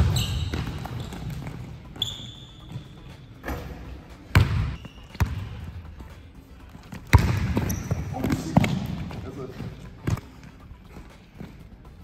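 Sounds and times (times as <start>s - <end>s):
short high shoe squeak: 0.0s - 1.3s, 2.0s - 3.2s, 4.8s - 5.2s, 7.6s - 8.2s
basketball bouncing on court: 0.0s - 5.8s, 6.9s - 10.3s.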